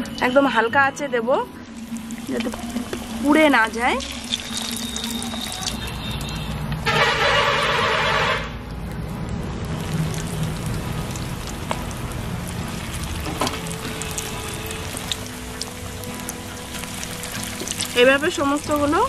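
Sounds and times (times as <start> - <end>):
food sizzling in oil: 1.6 - 8.2, 9.4 - 19.0
loud harsh tone: 4.4 - 8.6.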